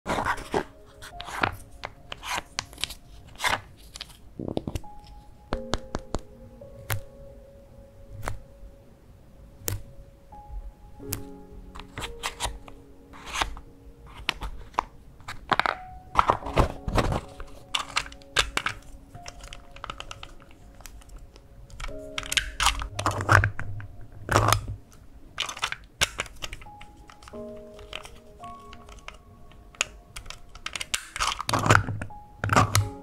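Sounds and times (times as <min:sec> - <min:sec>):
soft background music: 0:00.1 - 0:33.0
stamp bands clicking and scraping: 0:11.1 - 0:32.9.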